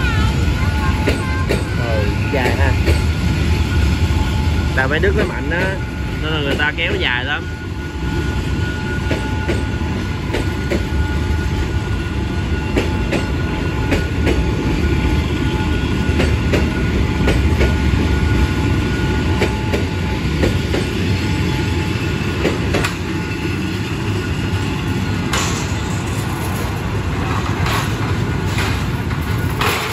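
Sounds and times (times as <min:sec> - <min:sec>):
freight train wheels rumbling: 0:00.0 - 0:29.9
wheels clacking over rail joints: 0:00.7 - 0:03.2, 0:24.9 - 0:29.9.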